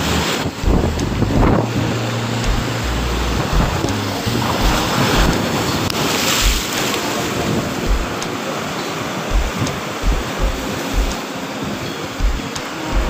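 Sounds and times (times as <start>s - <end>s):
seawater breaking against seawall: 0.0s - 10.4s
wind buffeting microphone: 0.0s - 13.0s.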